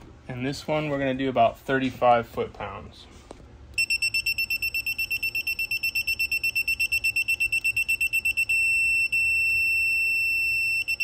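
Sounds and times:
rapid high-pitched beeps: 3.8 - 11.0.

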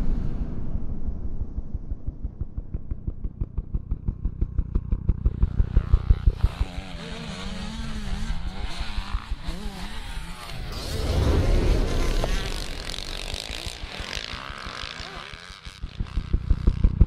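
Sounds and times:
fast regular thumping: 1.1 - 7.0, 10.0 - 17.0
dirt bike engines revving: 3.4 - 17.0.

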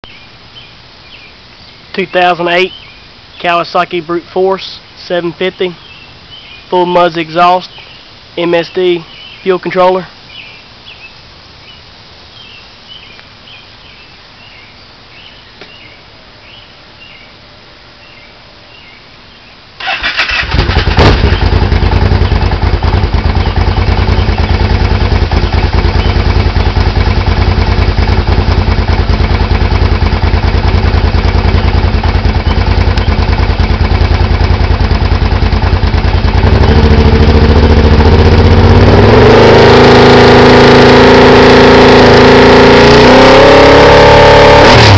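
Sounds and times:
atv engine running: 19.8 - 44.9.

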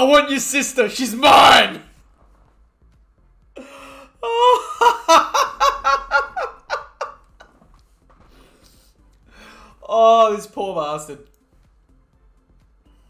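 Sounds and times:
person laughing: 3.6 - 7.6.

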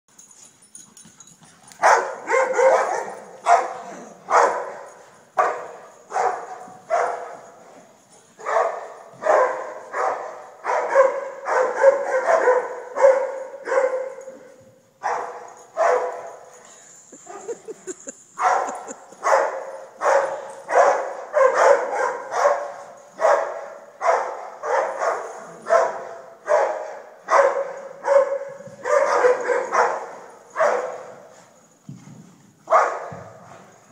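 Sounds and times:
puppies play-barking: 1.4 - 7.5.

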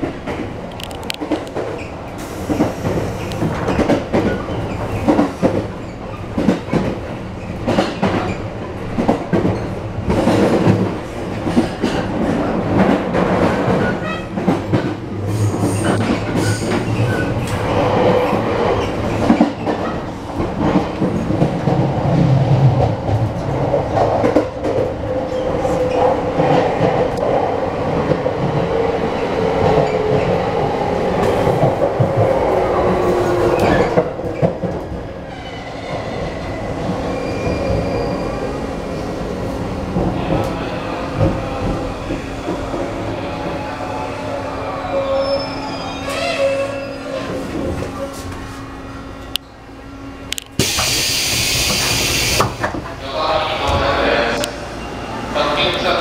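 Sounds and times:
train rumble: 0.0 - 56.0
train motor tone: 50.3 - 52.7.

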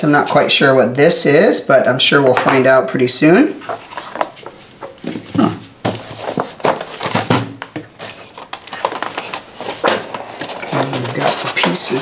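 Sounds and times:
cardboard box rustling and scraping: 3.7 - 12.0.

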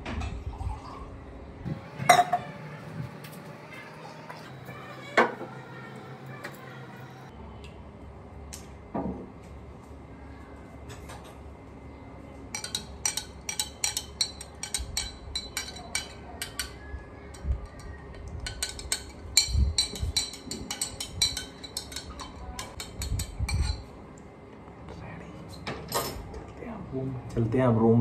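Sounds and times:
spoon clinking in glass: 12.6 - 23.8.

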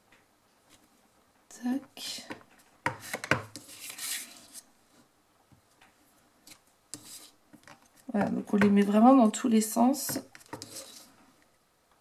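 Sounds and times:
stamp rubbing and sliding on paper: 10.5 - 11.0.

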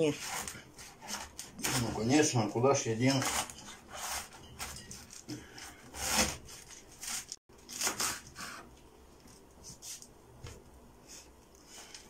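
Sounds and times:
knife cutting cabbage: 0.0 - 2.2, 3.0 - 8.7.

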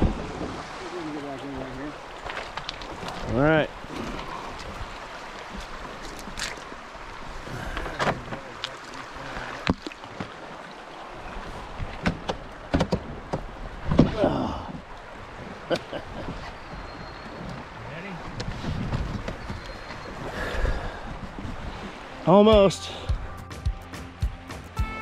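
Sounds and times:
canoe scraping on river stones: 0.0 - 6.6, 15.3 - 22.2
moving water washing: 0.0 - 23.4.

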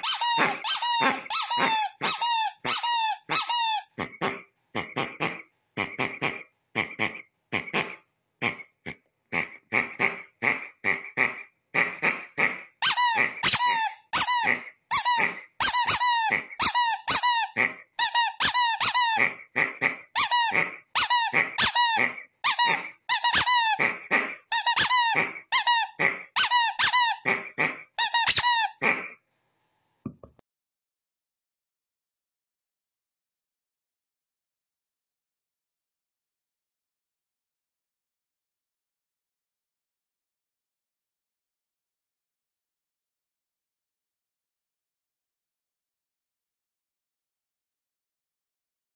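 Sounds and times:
rubber duck toy squeaking: 0.0 - 8.6, 9.4 - 29.1.

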